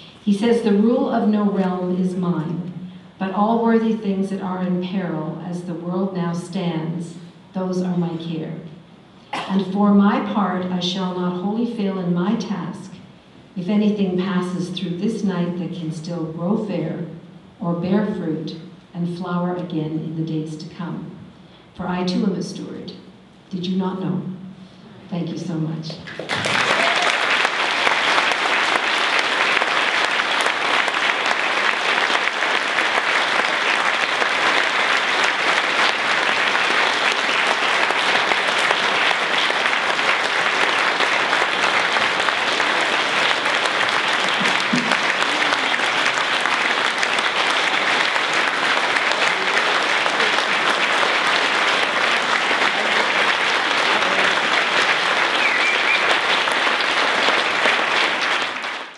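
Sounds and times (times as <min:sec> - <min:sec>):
audience applauding: 0:26.1 - 0:58.9.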